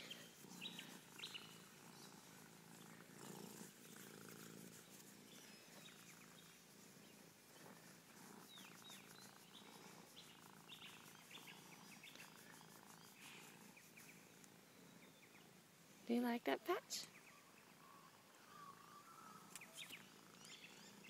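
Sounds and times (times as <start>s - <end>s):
cat purring faintly: 0.0s - 17.1s, 19.4s - 21.0s.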